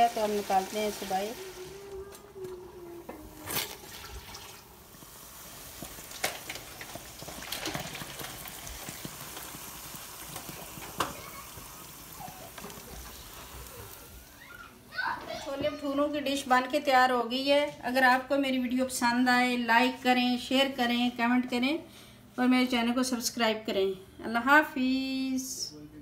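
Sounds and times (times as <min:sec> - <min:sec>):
bread sizzling in hot oil: 0:00.0 - 0:01.8, 0:03.4 - 0:14.6.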